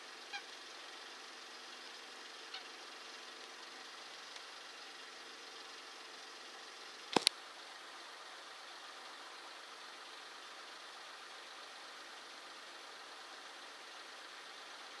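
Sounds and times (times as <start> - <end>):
sharp clicks: 7.1 - 7.4.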